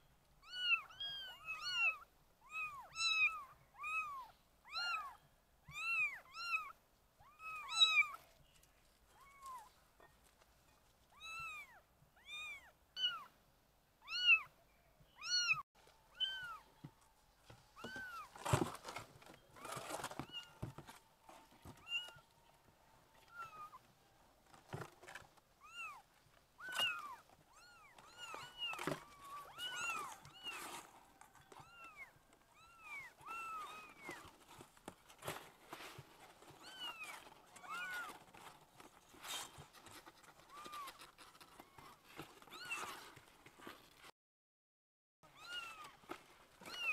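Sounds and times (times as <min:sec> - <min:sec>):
thumps and rustles: 0:16.8 - 0:22.2, 0:24.4 - 0:25.4, 0:26.6 - 0:44.1.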